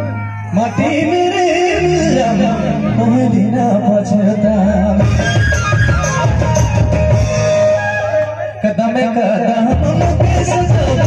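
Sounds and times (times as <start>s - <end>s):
wavering lead melody: 0.0s - 11.0s
drum and bass: 1.8s - 11.0s.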